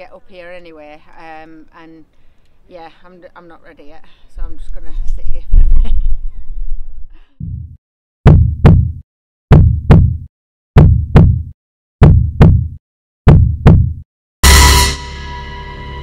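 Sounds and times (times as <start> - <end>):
deep heartbeat: 7.4 - 14.0.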